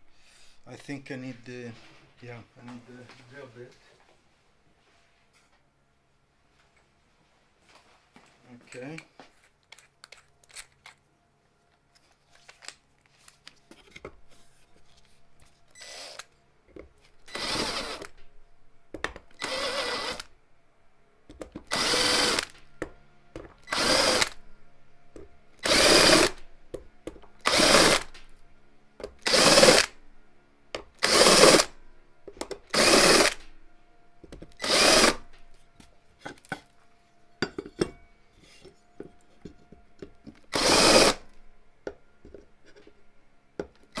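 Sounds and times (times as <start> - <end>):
cordless drill bursts: 15.7 - 16.3, 17.3 - 18.1, 19.4 - 20.3, 21.7 - 22.6, 23.6 - 24.4, 25.6 - 26.4, 27.4 - 28.1, 29.2 - 30.0, 31.0 - 31.7, 32.7 - 33.5, 34.6 - 35.3, 40.5 - 41.3.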